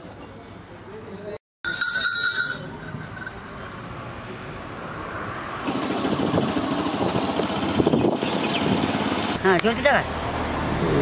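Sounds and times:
motorcycle riding on road: 4.8s - 11.0s.

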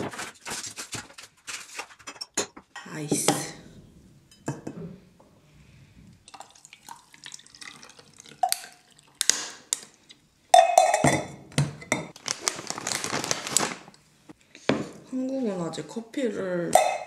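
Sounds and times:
coffee pouring over ice: 6.3s - 9.2s.

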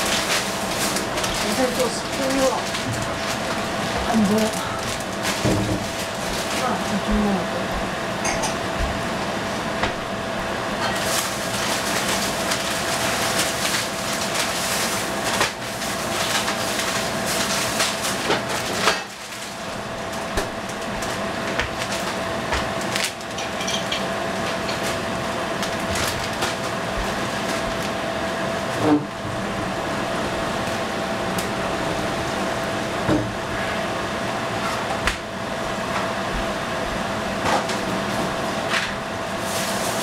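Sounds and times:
steady hum: 0.0s - 40.0s.

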